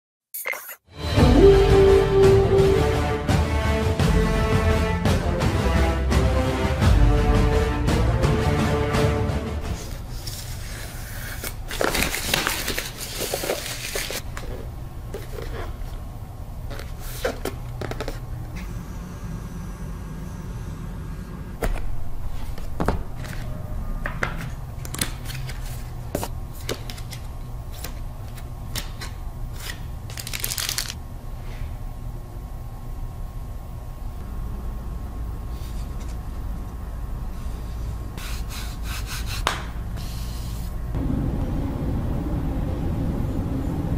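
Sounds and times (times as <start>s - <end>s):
steady low hum: 6.8s - 43.9s
packaging rustling and crinkling: 11.3s - 14.5s, 30.1s - 31.0s.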